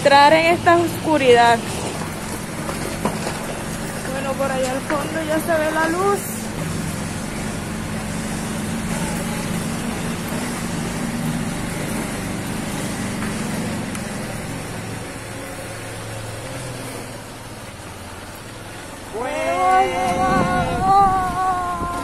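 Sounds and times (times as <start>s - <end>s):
motorcycle engine running: 0.0s - 22.0s
road and wind noise: 0.0s - 22.0s.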